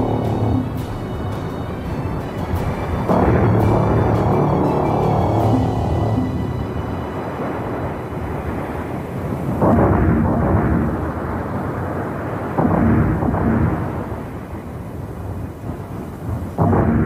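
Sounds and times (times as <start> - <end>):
deep booms: 0.0 - 6.8, 9.4 - 11.5, 12.5 - 14.6, 16.3 - 17.0
steady low rumble: 0.0 - 17.0.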